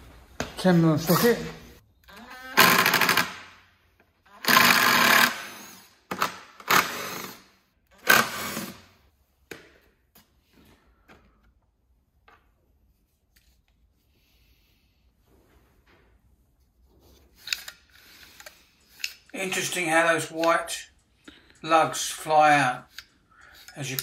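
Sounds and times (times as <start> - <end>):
impact driver rattling: 2.6 - 3.6, 4.4 - 7.4.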